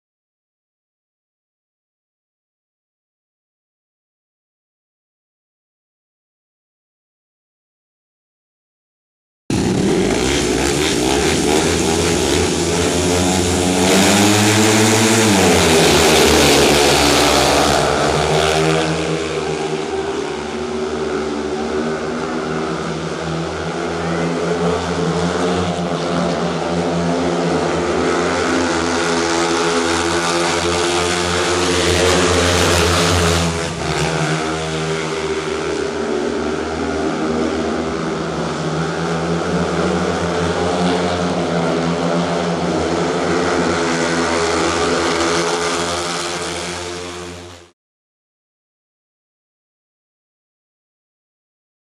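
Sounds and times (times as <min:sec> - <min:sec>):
racing motorcycle engines: 0:09.5 - 0:47.7.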